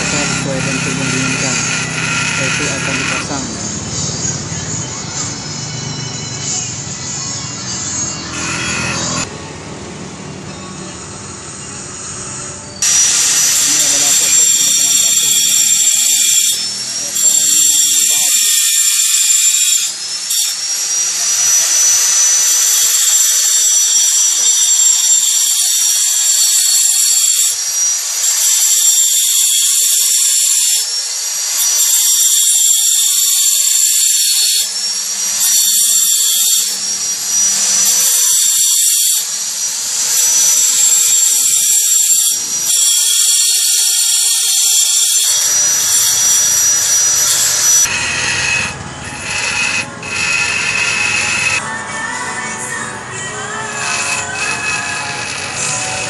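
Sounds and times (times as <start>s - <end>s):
angle grinder grinding stone: 0.0s - 9.3s, 12.7s - 51.8s, 52.7s - 56.0s.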